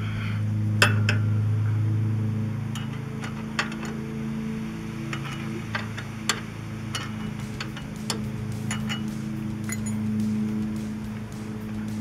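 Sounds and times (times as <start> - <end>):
steady low hum: 0.0 - 12.0
wrench clinking on metal: 0.8 - 1.3, 2.7 - 10.2.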